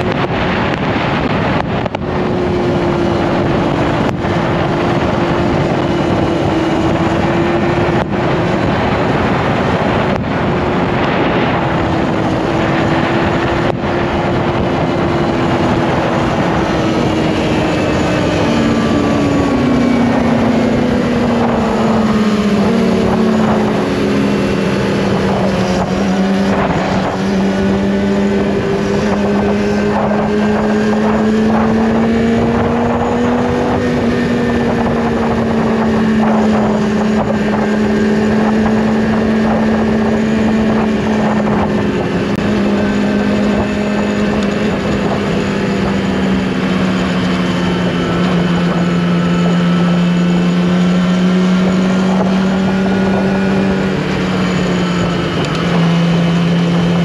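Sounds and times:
motorcycle engine running: 0:00.0 - 0:57.0
wind rushing over microphone: 0:00.0 - 0:57.0.

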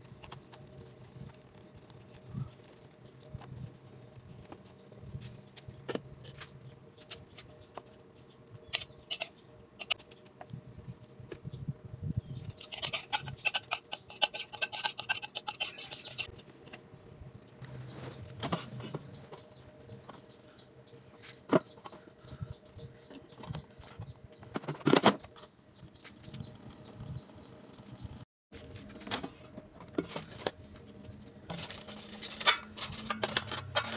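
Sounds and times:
leaves rustling and crinkling: 0:00.0 - 0:08.4, 0:28.5 - 0:33.9
mixture scraped from bowl: 0:12.5 - 0:16.3.

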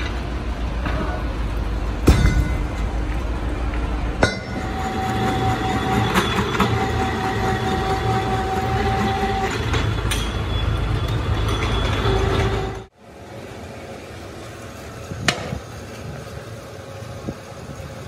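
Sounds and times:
low hum of workshop machinery: 0:00.0 - 0:18.0
sharp metal clanks: 0:04.2 - 0:04.8.

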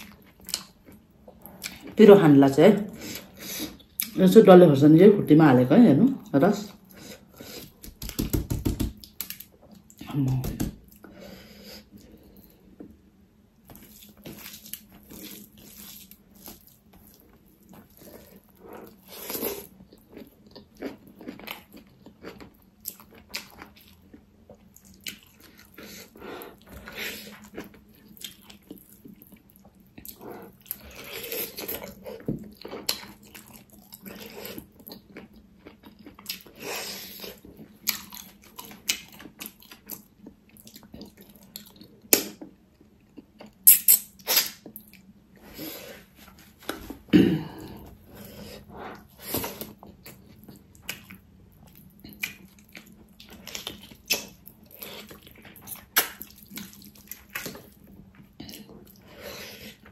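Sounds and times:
wet chewing and lip-smacking: 0:13.7 - 0:45.1, 0:48.9 - 0:59.0.

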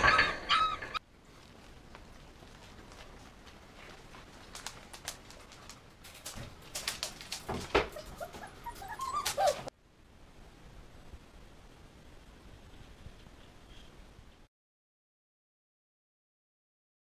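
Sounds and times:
puppies whining and yelping: 0:00.0 - 0:01.0, 0:07.8 - 0:09.7
clicks and scuffling: 0:00.0 - 0:09.7.

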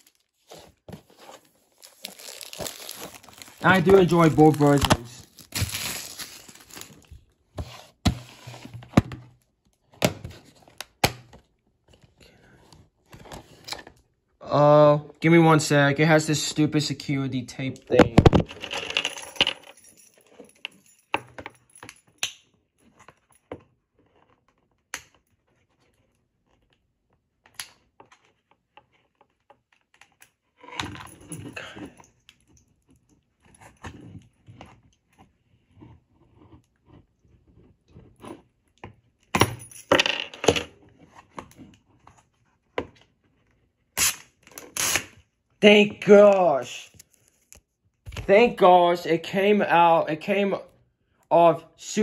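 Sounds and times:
tape peeling crinkly scraping: 0:00.0 - 0:07.2.

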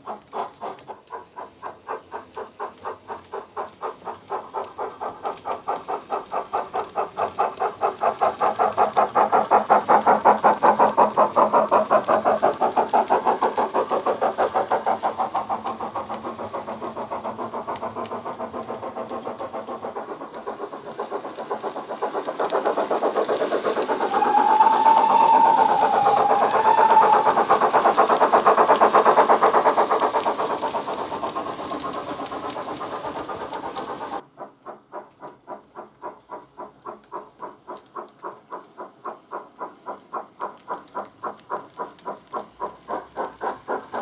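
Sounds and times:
model steam locomotive chuffs: 0:00.0 - 0:44.0
steam whistle: 0:24.1 - 0:27.4.

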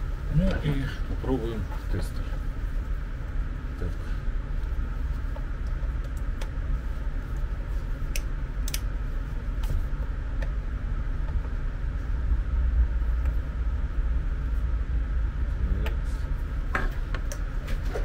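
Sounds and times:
steady low hum: 0:00.0 - 0:18.0
sharp clicks: 0:08.1 - 0:08.9.

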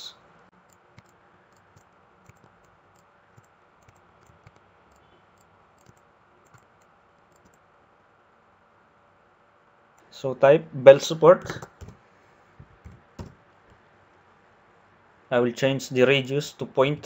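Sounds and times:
computer mouse clicks: 0:00.7 - 0:07.6.

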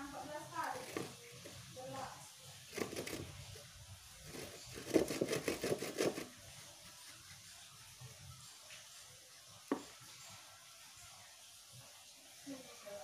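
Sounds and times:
file rasping on saw teeth: 0:04.4 - 0:06.3.

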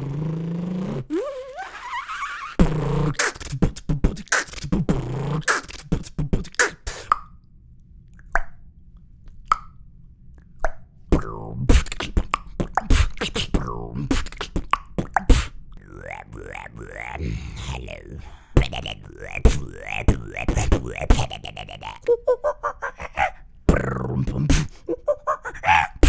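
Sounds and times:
beatboxing: 0:00.0 - 0:07.3, 0:11.1 - 0:26.0
mouth clicks: 0:00.0 - 0:07.4, 0:09.3 - 0:09.8, 0:10.4 - 0:26.0.

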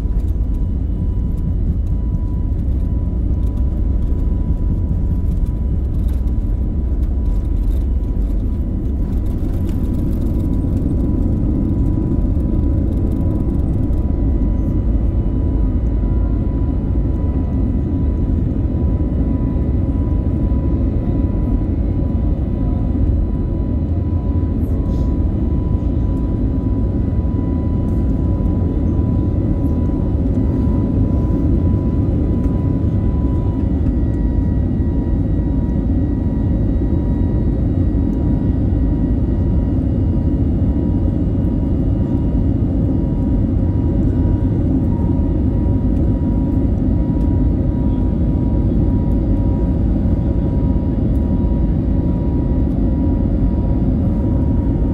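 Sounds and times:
jet cabin low rumble: 0:00.0 - 0:54.9.

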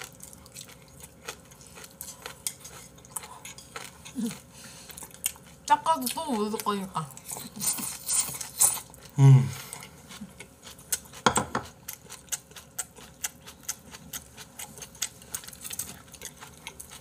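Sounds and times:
chewing with wet clicks: 0:00.0 - 0:09.1, 0:09.7 - 0:17.0
low voice hum: 0:09.1 - 0:09.9.

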